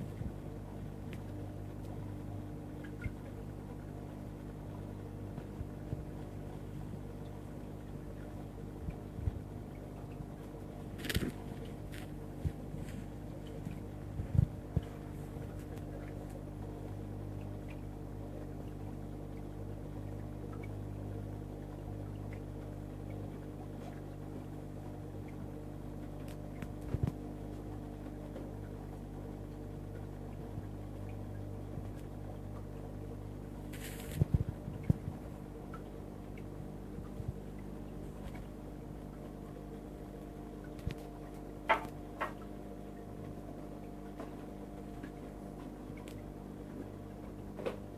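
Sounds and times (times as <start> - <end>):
aquarium pumps humming: 0.0 - 47.9
short hiss: 33.7 - 34.3.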